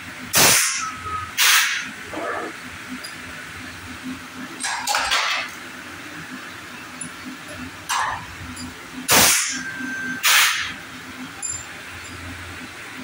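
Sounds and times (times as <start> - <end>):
die casting machine bursts: 0.2 - 2.0, 9.0 - 10.8.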